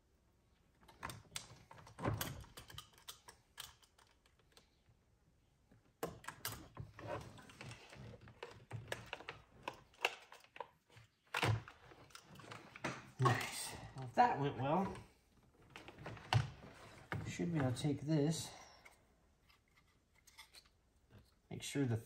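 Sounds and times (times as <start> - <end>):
plastic clicks and rattles: 0.8 - 4.8, 6.0 - 13.2.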